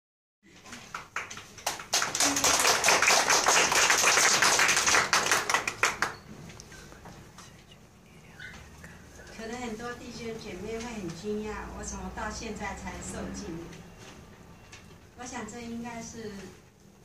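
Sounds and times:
people applauding: 0.8s - 6.3s.

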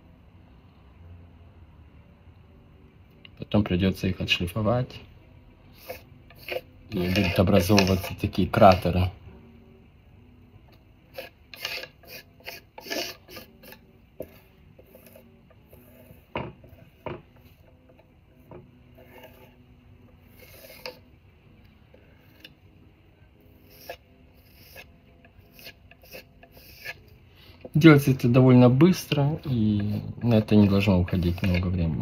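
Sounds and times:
palette knife scraping wood: 5.7s - 9.0s, 11.1s - 17.8s, 18.9s - 21.2s, 23.4s - 27.8s, 29.4s - 32.0s.

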